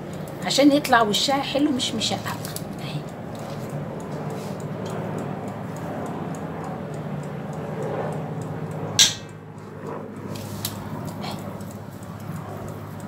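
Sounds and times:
low steady hum: 0:00.0 - 0:13.0
sharp click: 0:08.8 - 0:10.8.

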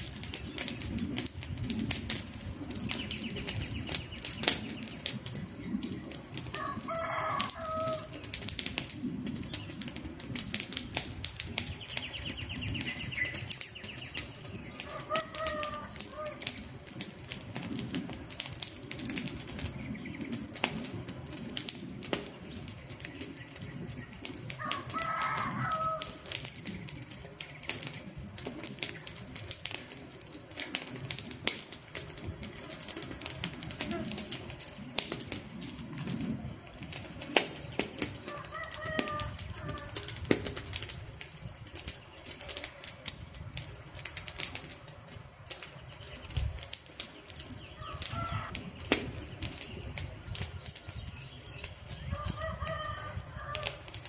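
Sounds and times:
campfire crackling: 0:00.0 - 0:54.0
bird call: 0:11.8 - 0:16.4.

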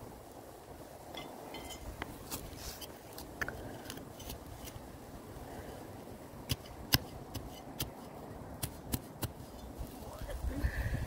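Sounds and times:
trowel scraping into soil: 0:02.2 - 0:04.8.

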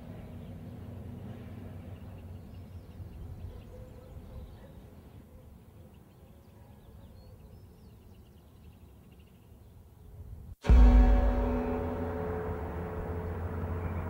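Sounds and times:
birds chirping: 0:00.0 - 0:10.2
low steady rumble: 0:10.6 - 0:14.0.

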